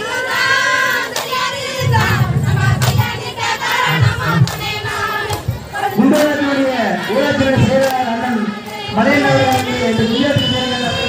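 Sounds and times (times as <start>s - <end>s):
murmur of crowd: 0.0s - 11.0s
women singing in chorus: 0.0s - 11.0s
hand claps: 1.1s - 3.3s, 4.0s - 6.6s, 7.7s - 8.1s.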